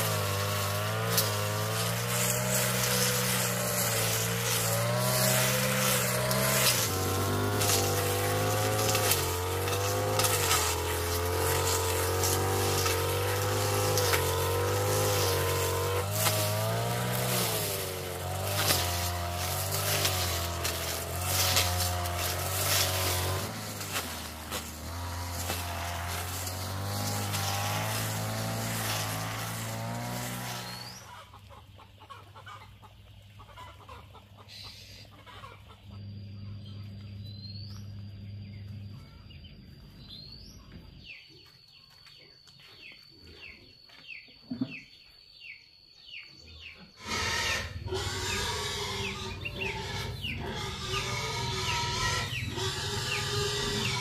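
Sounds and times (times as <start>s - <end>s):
string trimmer running: 0.0s - 31.4s, 35.9s - 39.4s, 47.0s - 54.0s
chicken clucks: 31.0s - 36.1s
high insect whine: 47.0s - 54.0s.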